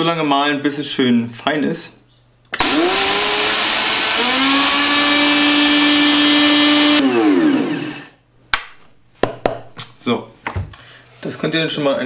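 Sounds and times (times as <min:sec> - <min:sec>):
blender grinding lentils: 0:02.6 - 0:08.2
blender motor whine: 0:02.6 - 0:08.2.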